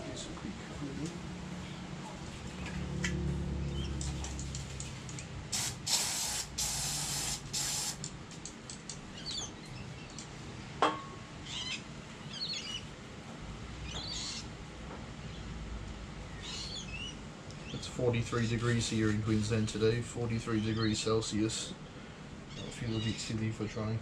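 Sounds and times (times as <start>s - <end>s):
birds chirping: 0.0s - 5.5s, 7.6s - 13.0s, 13.7s - 14.6s, 16.2s - 24.0s
aerosol spray can hissing: 5.5s - 8.1s.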